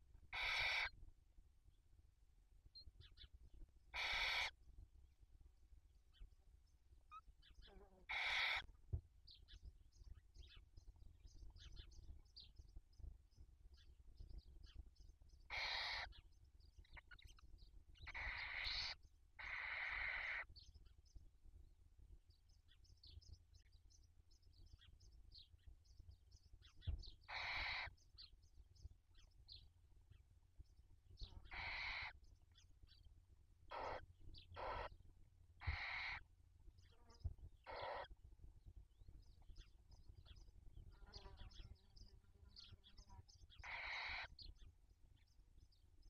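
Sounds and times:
owl chicks hissing calls: 0.3 - 1.0, 3.9 - 4.6, 8.0 - 8.7, 15.5 - 16.2, 18.0 - 20.5, 27.2 - 28.0, 31.4 - 32.2, 33.7 - 35.0, 35.6 - 36.3, 37.6 - 38.1, 42.6 - 44.6.

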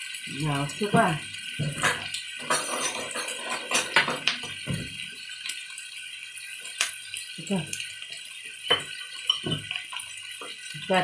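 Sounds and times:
utensils clinking against a pan: 0.8 - 5.0, 8.6 - 11.0.

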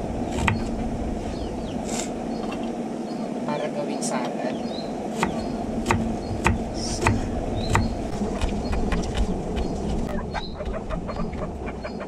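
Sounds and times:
knife chopping on wooden board: 5.2 - 9.3.

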